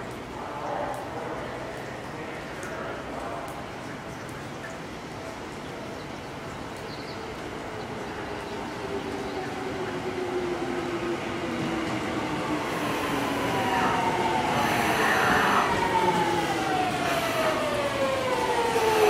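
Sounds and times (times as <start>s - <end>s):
train wheels on rail: 7.5s - 19.0s
train motor whine: 12.6s - 19.0s.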